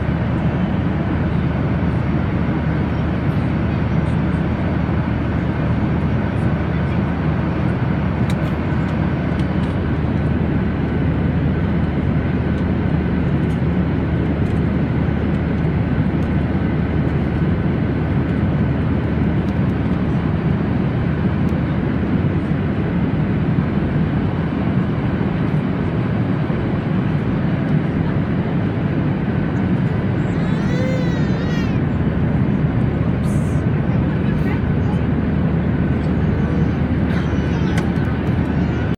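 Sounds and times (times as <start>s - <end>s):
airliner cabin airflow and engines: 0.0s - 38.9s.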